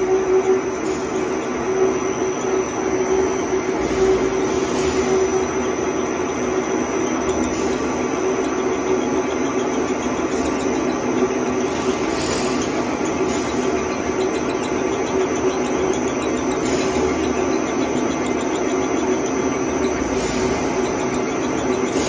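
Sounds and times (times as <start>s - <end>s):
lathe running: 0.0s - 22.0s
spindle drive hum: 0.0s - 22.0s.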